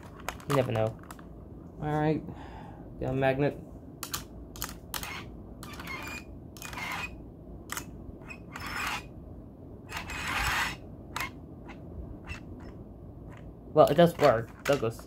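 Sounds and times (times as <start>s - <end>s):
plastic toy trains scraping and clicking: 7.7s - 9.1s, 9.9s - 11.4s, 13.3s - 15.0s.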